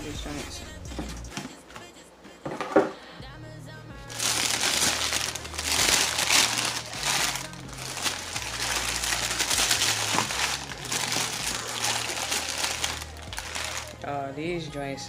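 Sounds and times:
background song bass line: 0.0s - 1.4s, 3.2s - 15.0s
tissue paper crinkling: 4.1s - 14.0s.

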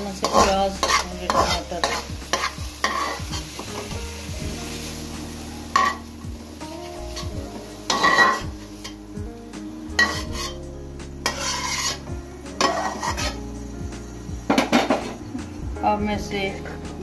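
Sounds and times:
spoon scraping metal pan: 0.2s - 3.3s, 7.9s - 9.0s, 10.0s - 10.6s, 11.2s - 13.4s.

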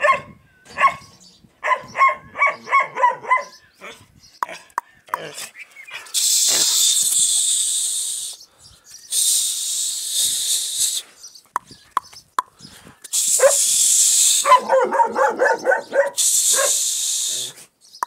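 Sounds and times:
dog whining yelps: 0.0s - 4.0s, 14.4s - 16.7s
loud hissing noise: 6.1s - 8.5s, 9.1s - 11.1s, 13.1s - 14.7s, 16.2s - 17.6s.

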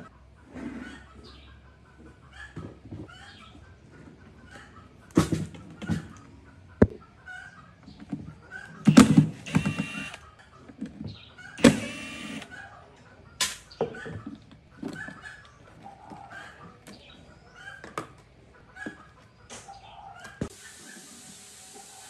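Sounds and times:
cordless impact driver running: 8.8s - 10.2s, 11.6s - 12.5s.

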